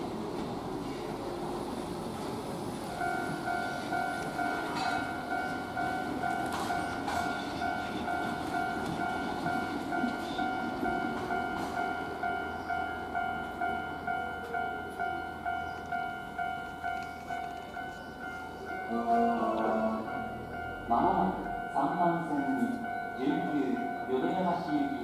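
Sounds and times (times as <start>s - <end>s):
electric train pulling away: 0.0s - 25.0s
train wheels clicking over points: 3.0s - 12.1s
electronic warning bell: 3.0s - 25.0s.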